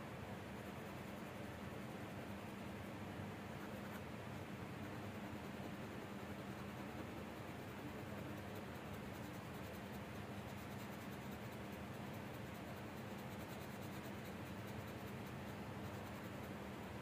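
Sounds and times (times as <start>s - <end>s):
faint steady hum: 0.0s - 17.0s
colored pencil scratching on paper: 4.8s - 16.9s.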